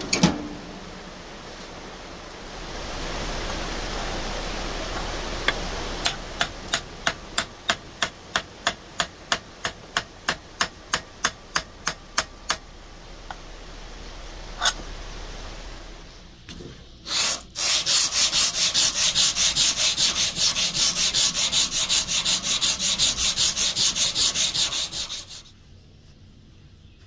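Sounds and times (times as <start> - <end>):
steady hiss: 0.0 - 26.8.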